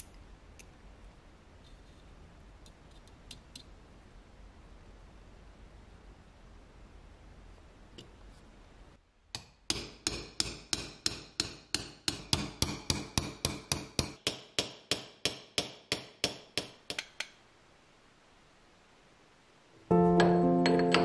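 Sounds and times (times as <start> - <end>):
hammer tapping on metal: 9.4 - 17.4, 20.2 - 21.0.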